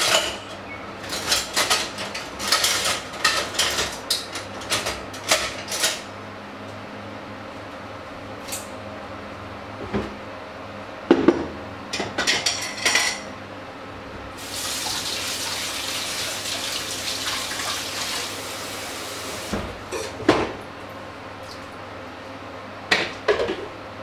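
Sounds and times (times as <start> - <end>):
dishes clattering: 19.9 - 20.6.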